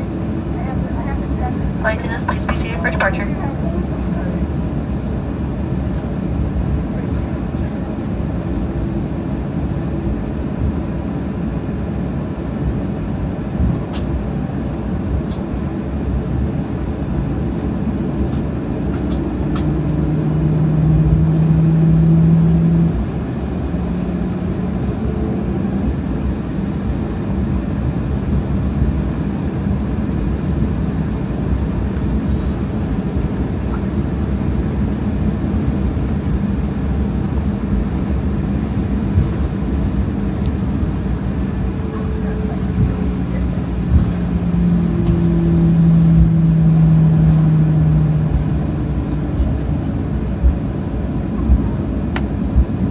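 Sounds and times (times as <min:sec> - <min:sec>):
hum: 0:00.0 - 0:04.6, 0:35.0 - 0:52.9
jet engines rumbling: 0:00.0 - 0:52.9.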